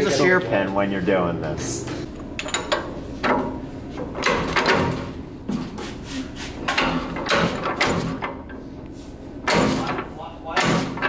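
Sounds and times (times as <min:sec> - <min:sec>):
metal parts clunking on a press: 0:06.7 - 0:08.6, 0:09.4 - 0:11.0.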